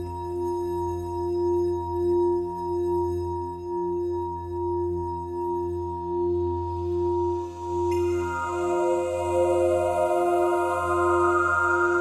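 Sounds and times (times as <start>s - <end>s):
ambient drone music: 7.9s - 12.0s.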